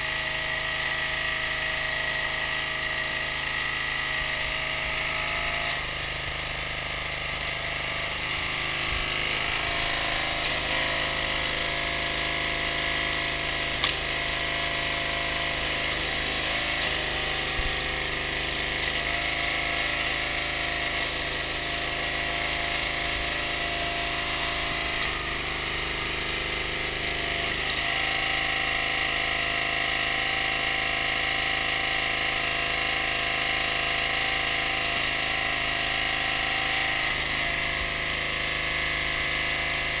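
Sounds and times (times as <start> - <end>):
petrol engine running: 0.0 - 31.4.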